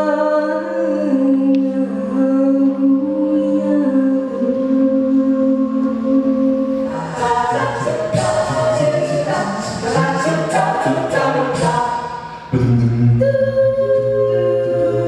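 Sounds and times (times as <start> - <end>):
a cappella group singing: 0.0 - 15.0.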